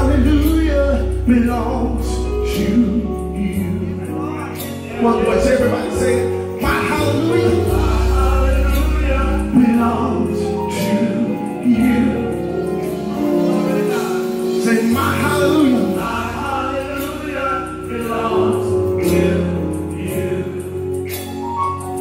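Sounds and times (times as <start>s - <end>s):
held low bass notes: 0.0s - 21.0s.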